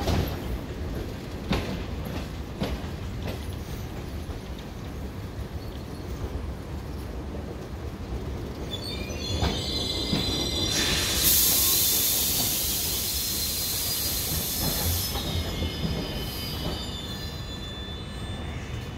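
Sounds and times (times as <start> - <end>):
train brakes squealing: 8.6 - 18.9
loud hiss of air: 10.5 - 15.6.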